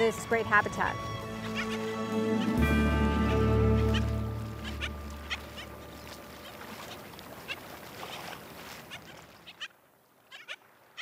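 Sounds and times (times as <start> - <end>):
background music: 0.0 - 6.4
waterbird calls: 0.0 - 11.0.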